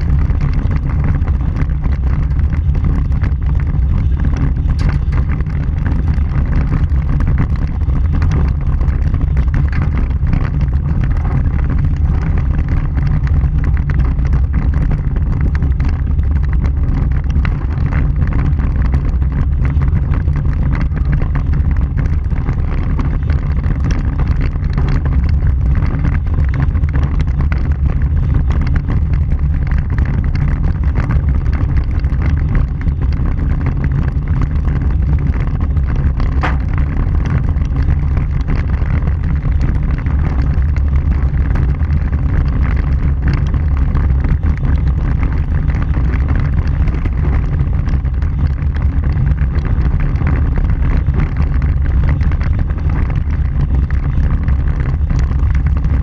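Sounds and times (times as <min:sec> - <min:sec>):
tyres rumbling on gravel: 0:00.0 - 0:56.0
wind buffeting microphone: 0:00.0 - 0:56.0.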